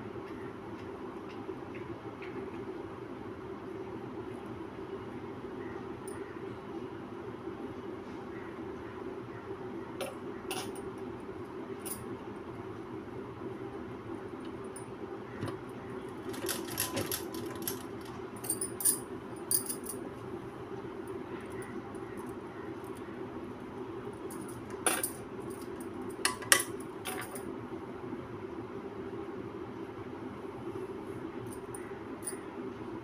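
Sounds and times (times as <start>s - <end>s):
sewing machine running: 16.2s - 18.0s
bangles clinking: 18.4s - 20.0s.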